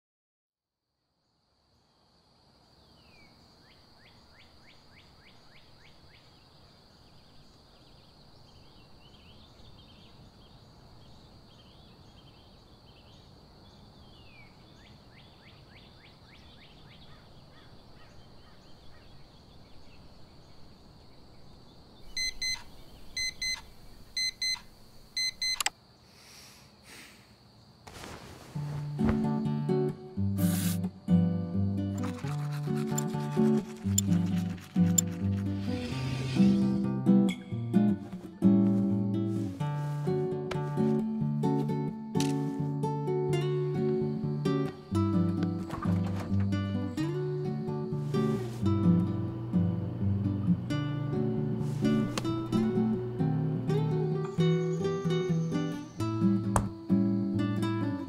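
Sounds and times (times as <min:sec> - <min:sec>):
faint birds chirping: 0:01.2 - 0:30.4, 0:38.2 - 0:58.0
digital alarm clock beeping: 0:22.2 - 0:22.6, 0:23.2 - 0:23.6, 0:24.2 - 0:24.6, 0:25.2 - 0:25.7.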